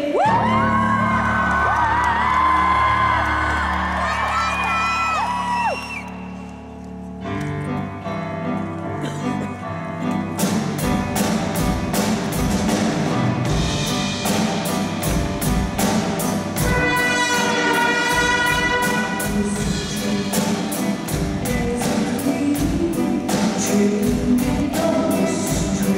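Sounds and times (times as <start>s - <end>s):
jazz big band playing: 7.6s - 25.9s
drums steady beat: 10.4s - 25.9s.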